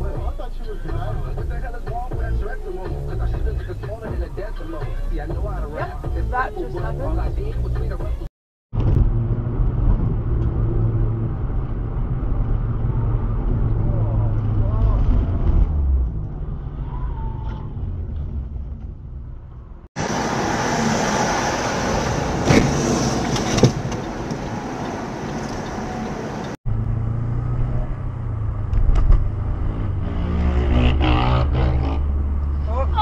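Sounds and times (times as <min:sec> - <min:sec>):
road and engine noise in car: 0:00.0 - 0:33.0.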